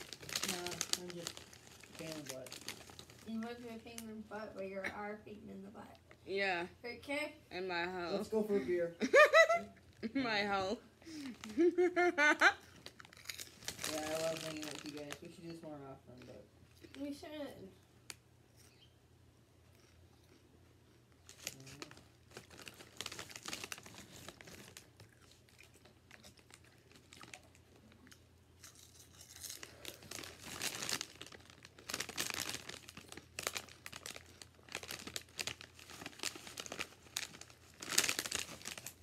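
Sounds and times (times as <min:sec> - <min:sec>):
foil chip bag crinkling: 0:00.0 - 0:04.2, 0:12.8 - 0:17.2, 0:21.2 - 0:28.0, 0:28.6 - 0:39.0.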